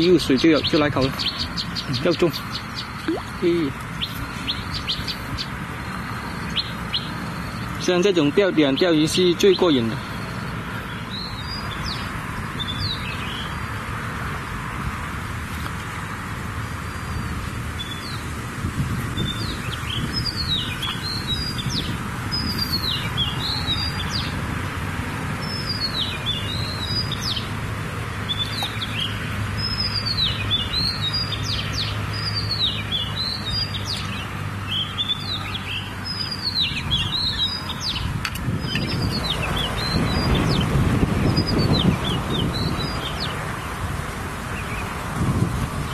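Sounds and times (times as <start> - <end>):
small birds chirping: 0.0 - 13.8, 16.8 - 24.4, 25.4 - 27.6, 28.2 - 43.9.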